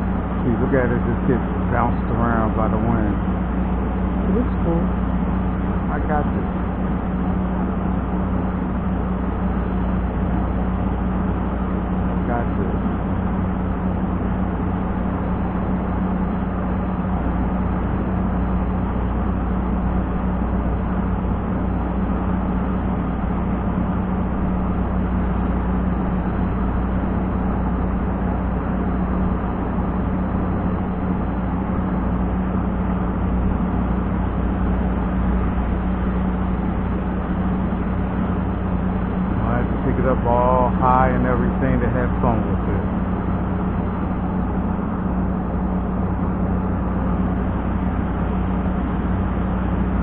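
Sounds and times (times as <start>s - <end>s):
constant low hum: 0.0s - 50.0s.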